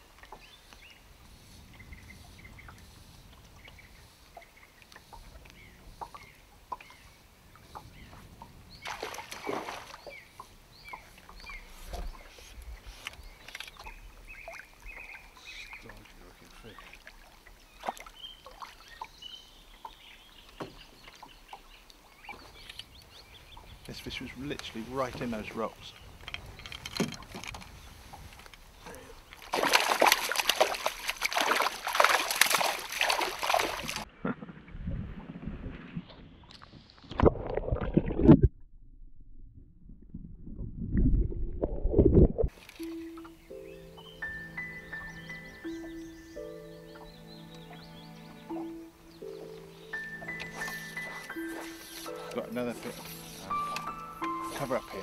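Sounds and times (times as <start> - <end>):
wind on microphone: 0.9 - 4.2, 22.4 - 28.8, 33.8 - 38.5, 39.7 - 42.6
fish splashing at surface: 29.4 - 34.1.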